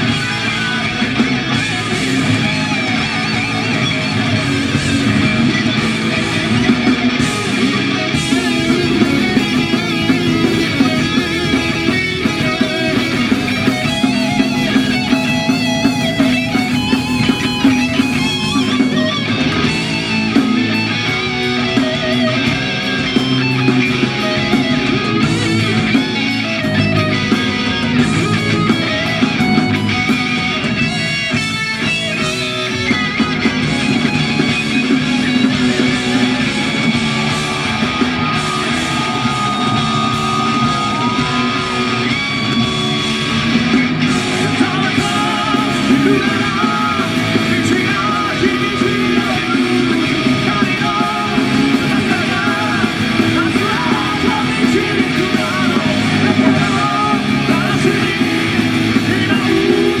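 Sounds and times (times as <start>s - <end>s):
heavy metal band playing live: 0.0s - 60.0s
man singing into a microphone: 44.2s - 60.0s.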